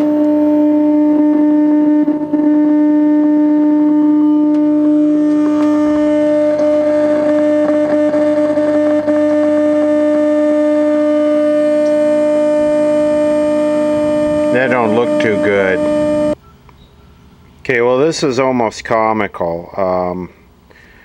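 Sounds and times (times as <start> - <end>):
buzzing tone from tv speaker: 0.0 - 16.4.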